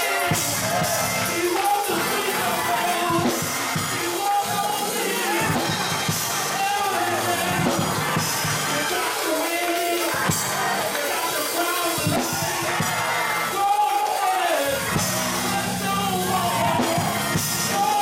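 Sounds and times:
drum kit and band: 0:00.0 - 0:18.0
gospel choir singing: 0:00.0 - 0:18.0.

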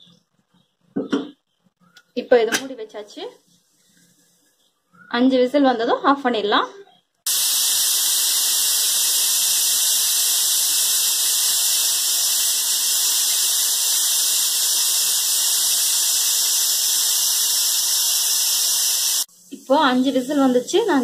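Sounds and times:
pressure cooker whistling: 0:07.3 - 0:19.3.

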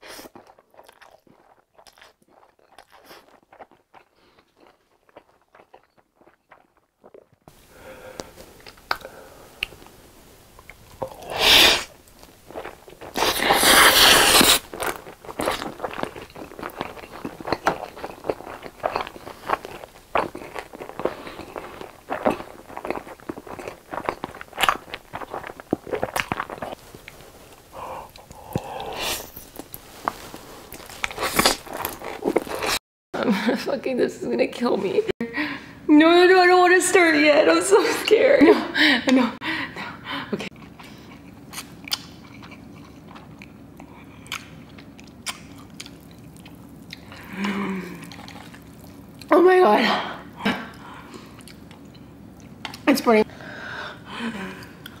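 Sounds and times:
wet chewing with crunchy bites: 0:00.0 - 0:07.5, 0:08.1 - 0:10.0, 0:10.6 - 0:32.8, 0:40.5 - 0:49.4, 0:50.7 - 0:52.9
noodle slurping: 0:11.0 - 0:32.8.

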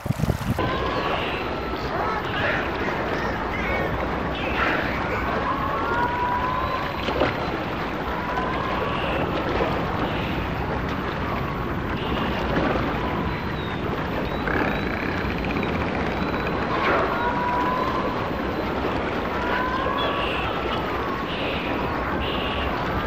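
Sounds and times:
wind noise on microphone: 0:00.0 - 0:05.8
small waves along shore: 0:00.0 - 0:23.0.

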